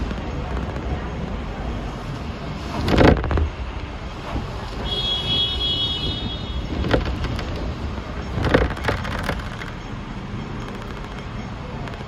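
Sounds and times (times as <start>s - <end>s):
tram rumbling: 0.0s - 12.0s
sharp clatters and knocks: 6.6s - 12.0s.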